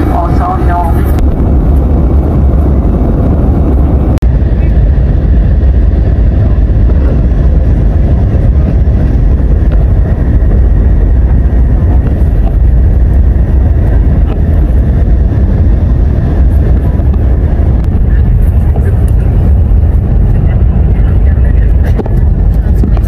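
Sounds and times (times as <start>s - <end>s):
airliner cabin engine rumble: 0.0s - 23.0s.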